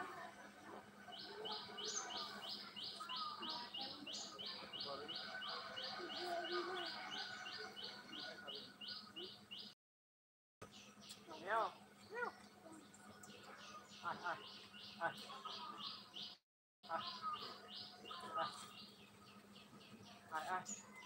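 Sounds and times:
fainter lower bird chatter: 0:00.0 - 0:09.8, 0:10.6 - 0:21.0
bird chirping high: 0:01.1 - 0:09.7.

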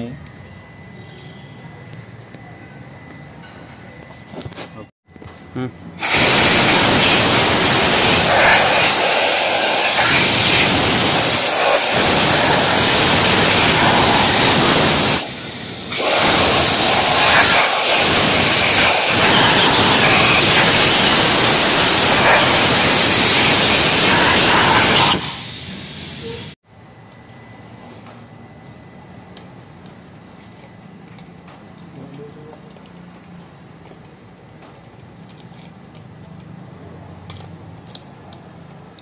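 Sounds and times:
rushing hiss of air: 0:06.0 - 0:26.6.

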